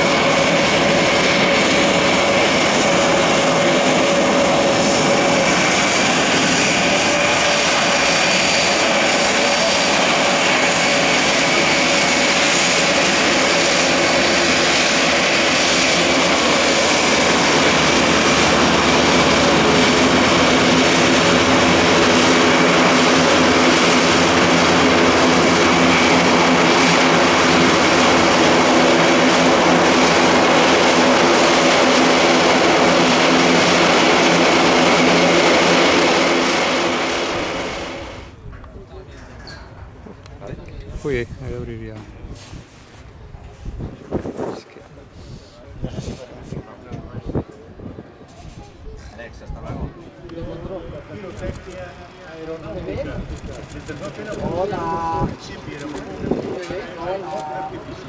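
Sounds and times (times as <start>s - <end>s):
deep propeller hum: 0.0s - 39.0s, 49.8s - 58.0s
high engine whine: 0.0s - 40.8s
propeller aircraft engines running: 0.0s - 58.0s.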